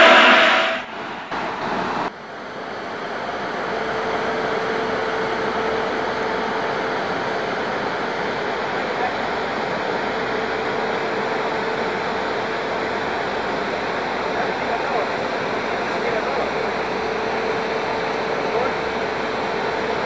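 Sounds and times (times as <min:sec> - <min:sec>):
locomotive cooling blowers rushing: 0:00.0 - 0:02.0.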